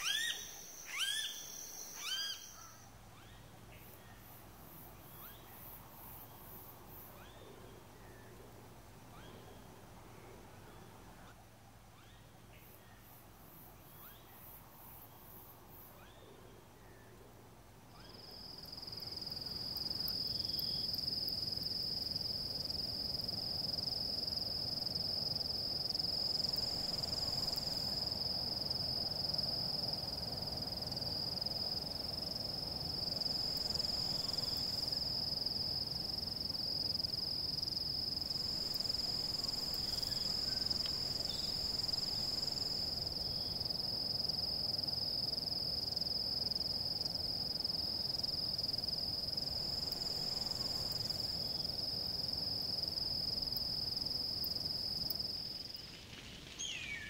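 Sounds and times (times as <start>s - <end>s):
insects buzzing trill: 0.0s - 2.9s, 18.0s - 57.0s.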